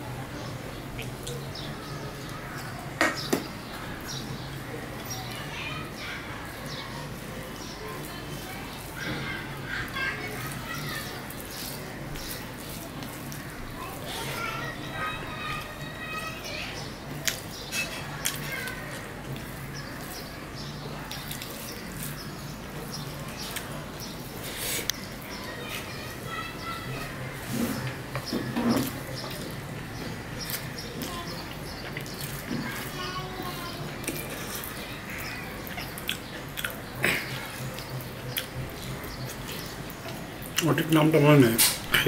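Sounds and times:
birds chirping faintly: 0.0s - 42.0s
fingers mixing food on steel plate: 6.4s - 41.8s
chewing: 17.1s - 25.9s, 27.3s - 40.7s
wet chewing and mouth smacks: 17.2s - 17.5s, 34.0s - 40.7s.

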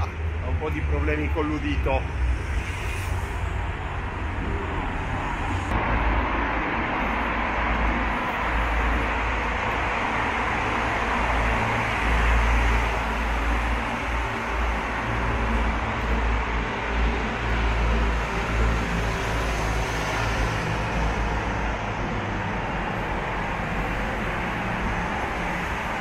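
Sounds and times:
heavy low rumble: 0.0s - 18.5s
car traffic in tunnel: 0.0s - 26.0s.

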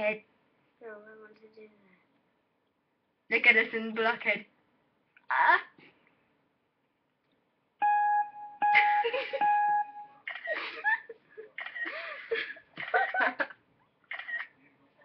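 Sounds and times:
girls making vocal sounds: 5.2s - 5.8s
steady high tone: 7.8s - 10.2s.

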